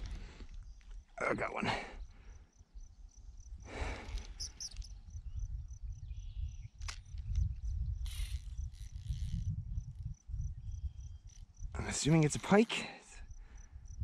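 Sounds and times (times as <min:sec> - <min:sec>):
insect chirping: 0:00.1 - 0:14.0
wind rumbling on microphone: 0:02.0 - 0:12.4, 0:13.2 - 0:14.0.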